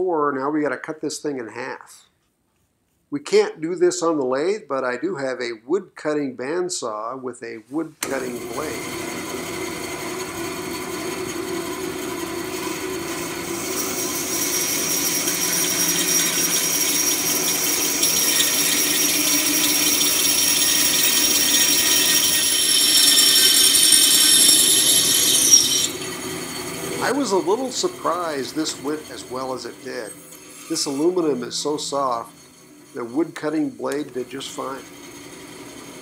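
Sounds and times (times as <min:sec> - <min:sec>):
bandsaw running: 0:08.0 - 0:36.0
blade rasping in metal: 0:09.9 - 0:36.0.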